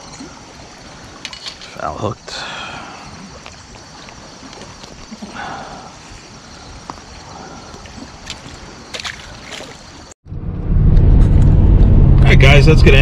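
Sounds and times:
water lapping against bank: 0:00.0 - 0:10.2
fish splashing into water: 0:07.7 - 0:10.1
car engine rumble and road noise: 0:10.3 - 0:13.0.

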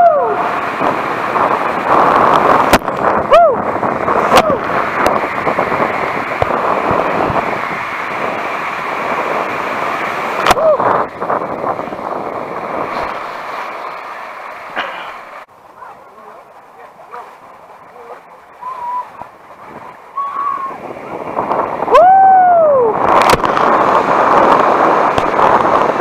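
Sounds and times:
water rushing down slide tube: 0:00.0 - 0:26.0
person shouting: 0:03.3 - 0:03.6, 0:10.5 - 0:10.9, 0:18.6 - 0:19.2.

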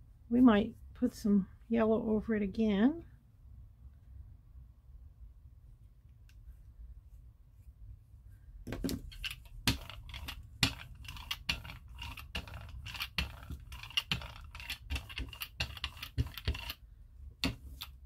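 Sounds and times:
applicator rubbing paint on paper: 0:09.2 - 0:16.8.

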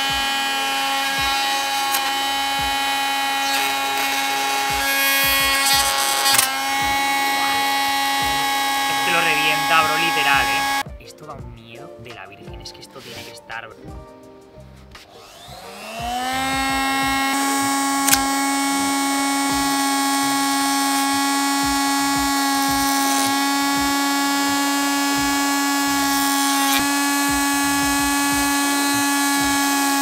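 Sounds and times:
trim router whining: 0:00.0 - 0:10.9, 0:15.0 - 0:30.0
sharp clicks: 0:00.1 - 0:10.8, 0:16.0 - 0:18.8.

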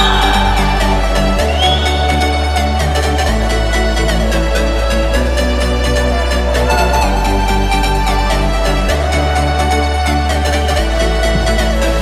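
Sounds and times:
electronic dance music: 0:06.3 - 0:08.8.

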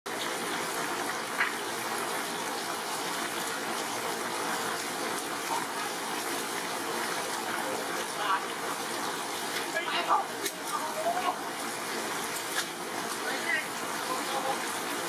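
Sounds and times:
heavy rain pouring: 0:00.1 - 0:15.0.

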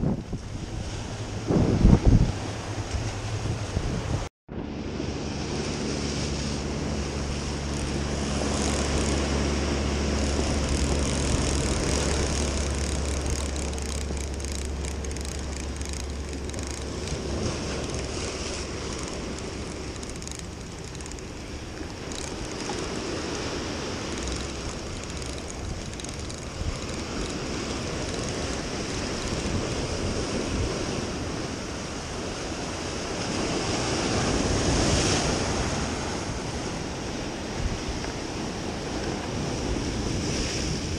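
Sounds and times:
wind buffeting microphone: 0:00.0 - 0:04.8, 0:05.4 - 0:40.9
steady low hum: 0:04.5 - 0:31.6.

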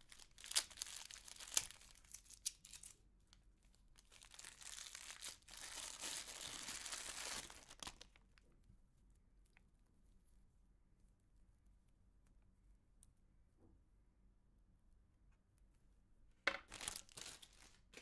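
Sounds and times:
plastic wrapping crinkling: 0:00.0 - 0:03.0, 0:03.9 - 0:08.5, 0:16.5 - 0:18.0.

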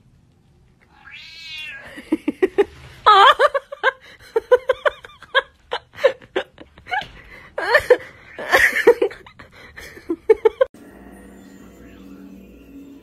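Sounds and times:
cat chirping: 0:00.9 - 0:01.9
person laughing breathily: 0:01.8 - 0:10.7
soft music: 0:10.8 - 0:13.0.

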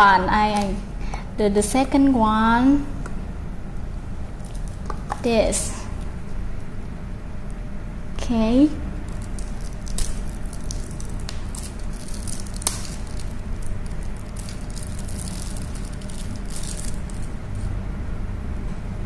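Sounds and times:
steady low hum: 0:00.0 - 0:19.0
plastic wrapper crinkling: 0:04.4 - 0:05.3, 0:09.1 - 0:17.6.

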